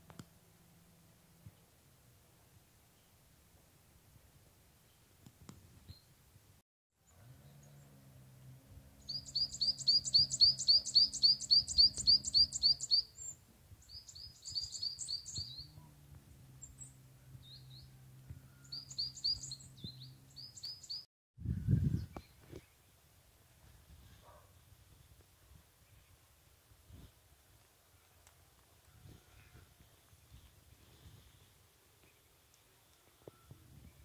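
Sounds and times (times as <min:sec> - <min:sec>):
songbird chirping: 0:07.0 - 0:21.1.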